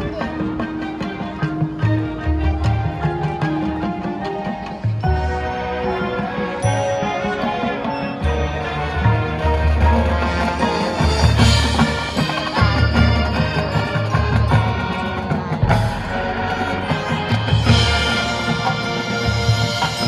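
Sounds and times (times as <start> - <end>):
brass and wind chords: 4.6 - 20.0
sharp percussive accent: 11.1 - 20.0.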